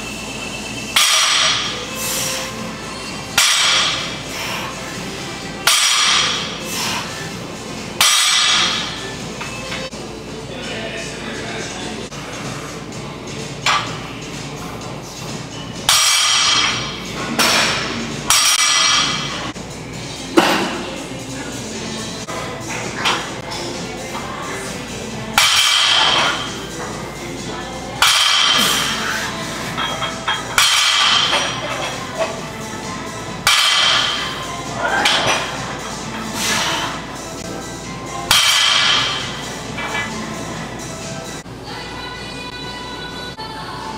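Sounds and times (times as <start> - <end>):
background music: 0.0 - 43.9
weight plates clanking: 28.0 - 32.4.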